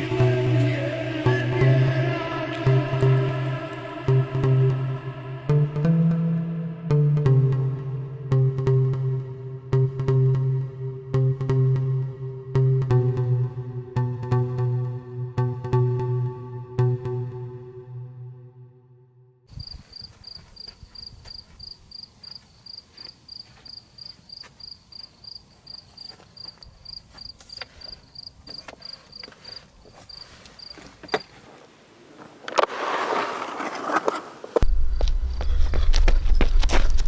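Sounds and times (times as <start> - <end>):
music: 0.0 - 19.5
cricket chirping: 19.5 - 36.6
rustling noise: 27.3 - 37.0.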